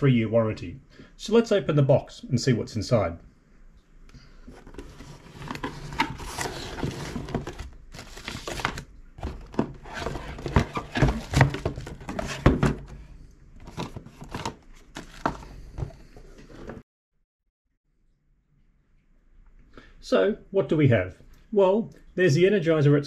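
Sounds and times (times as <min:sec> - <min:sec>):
plastic packaging crinkling: 0:04.5 - 0:12.5
cardboard flaps rustling: 0:04.5 - 0:13.0, 0:13.6 - 0:16.8
plastic knocks and thumps: 0:04.5 - 0:13.0, 0:13.6 - 0:16.8.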